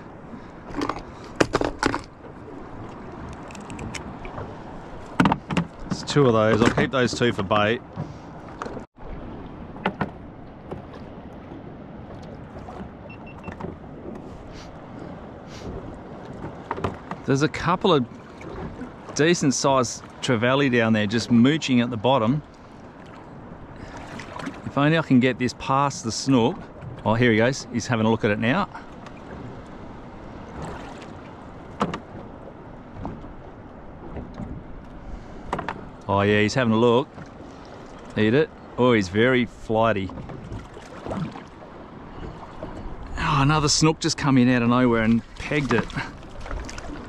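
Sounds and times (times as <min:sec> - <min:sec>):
water lapping against boat hull: 0:00.0 - 0:47.0
small knocks: 0:05.1 - 0:07.3, 0:16.3 - 0:17.3, 0:35.5 - 0:35.8.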